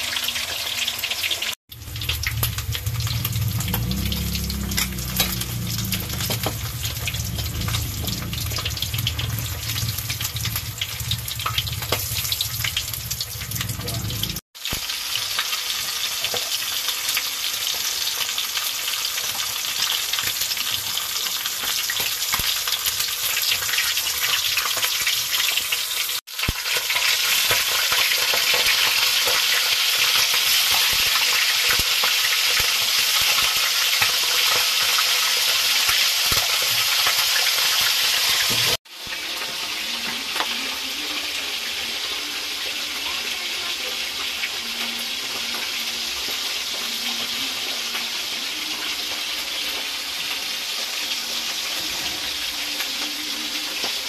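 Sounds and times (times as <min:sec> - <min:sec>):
fish frying in hot oil: 0:00.0 - 0:54.0.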